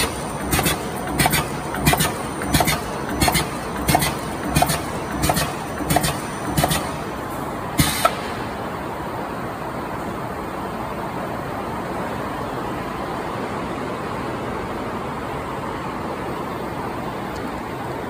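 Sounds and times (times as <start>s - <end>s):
die-cutting machine clacking: 0.0s - 8.3s
constant mechanical hum: 0.0s - 18.0s.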